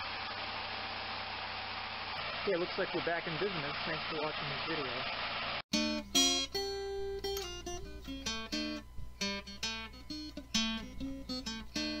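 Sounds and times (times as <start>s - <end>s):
acoustic guitar plucking and strumming: 5.7s - 12.0s.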